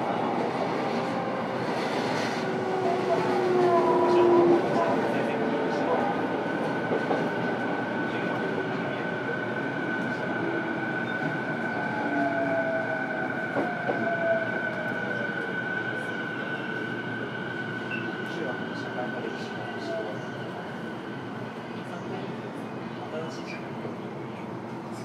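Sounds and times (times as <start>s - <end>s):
train wheels rumbling on rail: 0.0s - 11.8s.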